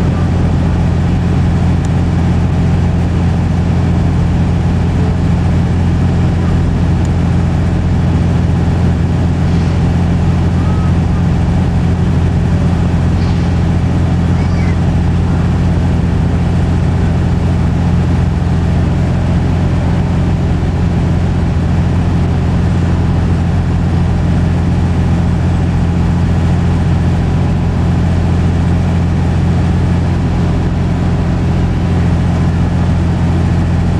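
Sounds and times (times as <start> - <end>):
engine idling: 0.0 - 33.9.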